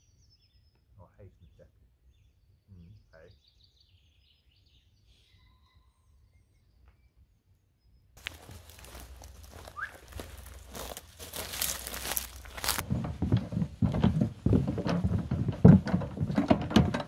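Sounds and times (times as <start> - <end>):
birds chirping: 0.0 - 16.3
faint outdoor ambience: 0.0 - 17.0
close rustling and crinkling: 8.2 - 17.0.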